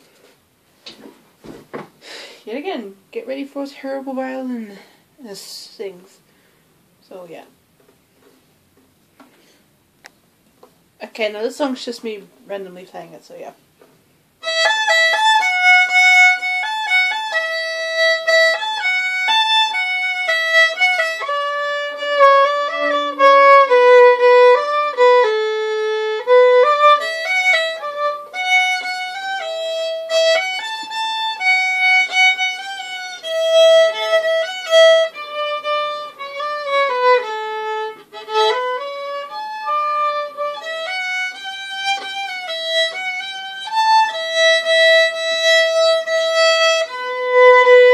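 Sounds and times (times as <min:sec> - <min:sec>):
solo violin melody: 0:14.4 - 0:47.9.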